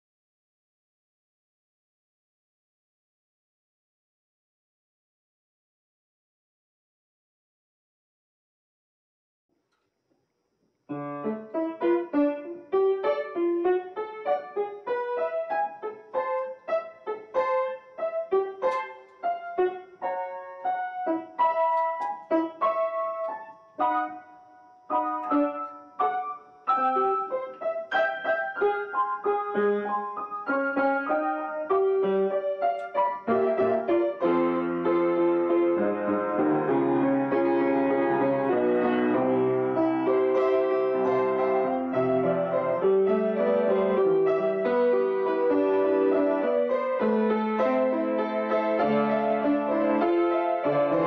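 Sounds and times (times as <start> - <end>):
solo piano: 10.8 - 51.0.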